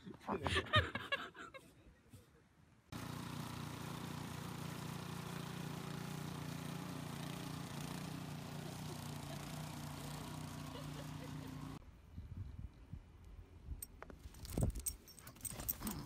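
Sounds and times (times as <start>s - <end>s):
snowblower engine running: 2.9s - 11.8s.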